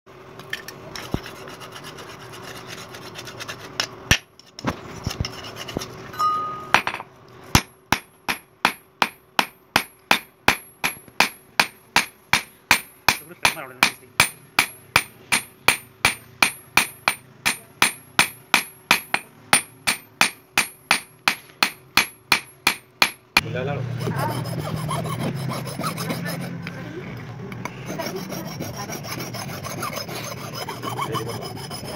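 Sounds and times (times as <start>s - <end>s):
steady hum and hiss: 0.1s - 31.9s
hammer ringing on anvil: 6.2s - 7.0s.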